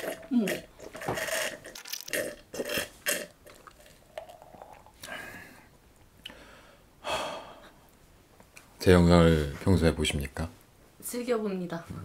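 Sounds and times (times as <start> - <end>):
man drinking and swallowing: 0.0 - 6.4
breathy exhales: 6.3 - 7.8.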